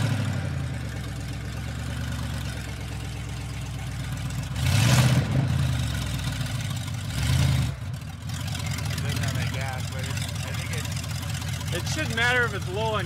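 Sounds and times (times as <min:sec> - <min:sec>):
engine revving: 0:00.0 - 0:01.2, 0:03.8 - 0:13.0
pickup truck engine running: 0:00.0 - 0:13.0.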